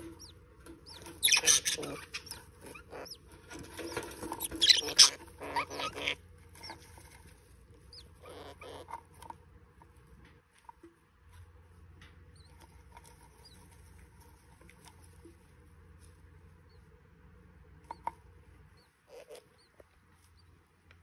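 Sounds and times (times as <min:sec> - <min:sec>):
budgerigars chattering and squeaking: 0:00.0 - 0:06.8, 0:07.9 - 0:09.0, 0:18.8 - 0:19.8.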